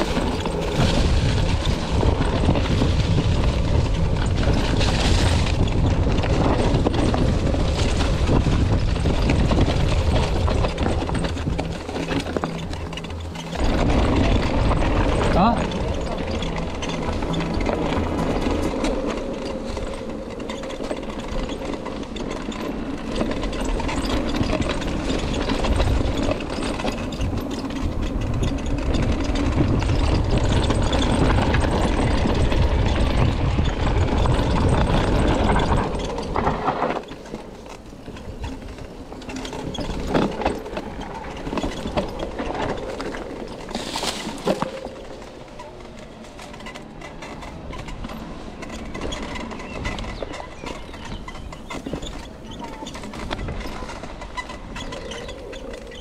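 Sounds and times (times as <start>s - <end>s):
bike tyres rolling over trail: 0.0s - 56.0s
wind buffeting the microphone: 0.0s - 56.0s.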